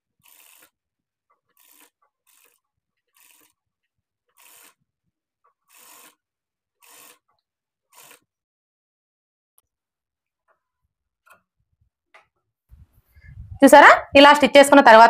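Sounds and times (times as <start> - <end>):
sewing machine stitching: 0.0 - 0.8, 1.4 - 4.9, 5.5 - 8.4.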